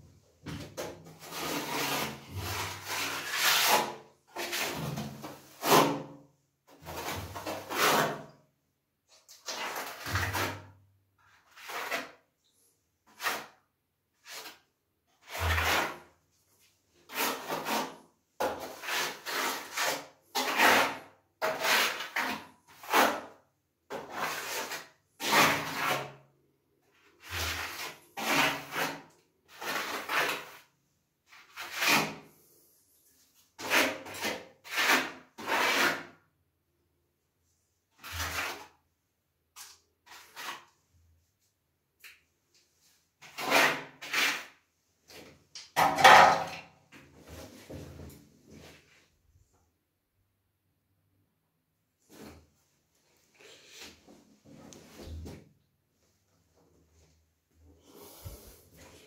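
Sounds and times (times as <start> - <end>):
trowel scraping adhesive on wall: 0.4 - 8.4, 9.1 - 36.3, 37.9 - 38.9, 39.5 - 41.0, 42.8 - 48.9, 57.8 - 59.0.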